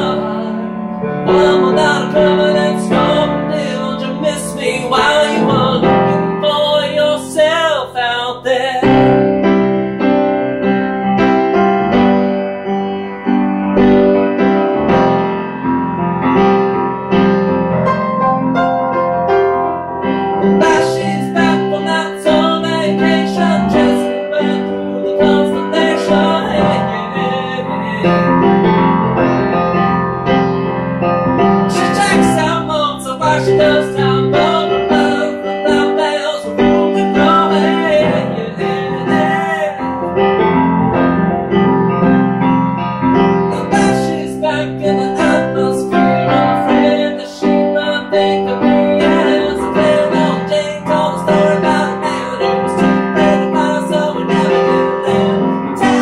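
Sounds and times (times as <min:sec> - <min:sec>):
man singing: 0:00.0 - 0:09.4, 0:20.6 - 0:28.5, 0:31.7 - 0:40.2, 0:43.5 - 0:56.0
grand piano chords: 0:00.0 - 0:56.0.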